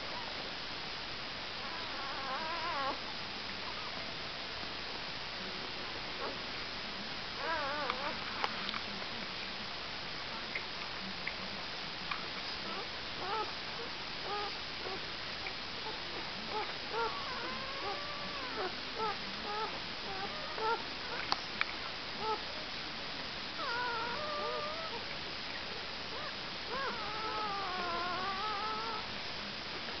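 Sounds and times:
puppies squeaking and whimpering: 0:01.7 - 0:03.0, 0:14.3 - 0:15.0, 0:16.5 - 0:21.2, 0:23.6 - 0:25.0, 0:26.1 - 0:29.0.

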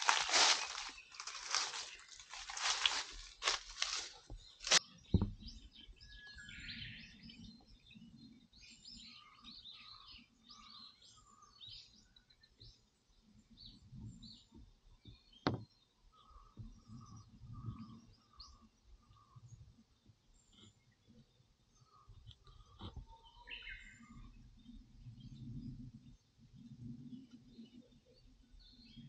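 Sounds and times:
low rustling handling noise: 0:00.0 - 0:05.5
birds chirping and calling: 0:00.0 - 0:12.0, 0:15.0 - 0:19.6.

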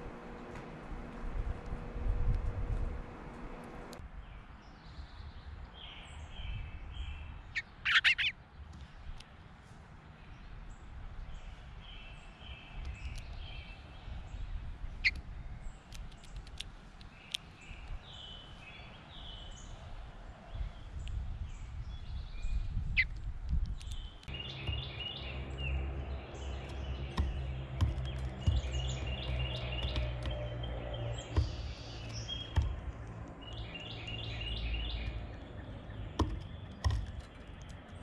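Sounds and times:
low rumble: 0:00.0 - 0:04.0
steady low hum: 0:00.0 - 0:04.0
songbirds chirping: 0:00.0 - 0:38.0
sharp taps: 0:26.0 - 0:33.7, 0:36.0 - 0:38.0.

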